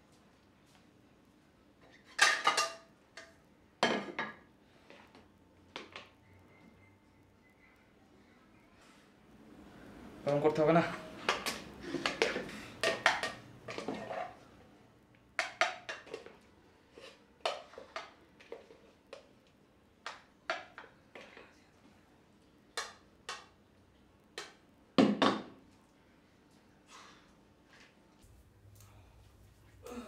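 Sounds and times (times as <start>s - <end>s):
spoon scraping pots: 10.9s - 14.5s.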